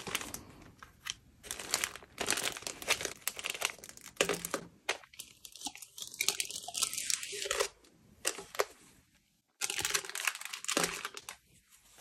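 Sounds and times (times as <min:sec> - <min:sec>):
plastic packaging crinkling: 0:00.0 - 0:08.7, 0:09.6 - 0:12.0.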